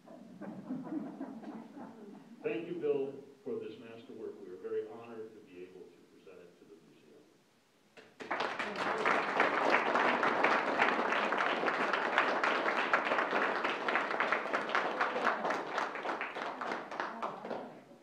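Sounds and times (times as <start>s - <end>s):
audience applauding: 8.0s - 17.8s.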